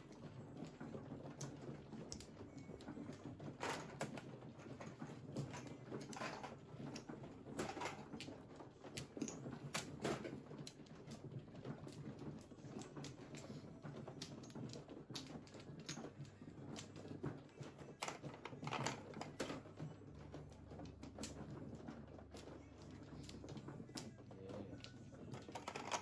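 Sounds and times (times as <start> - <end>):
mahjong tiles clacking: 25.4 - 26.0.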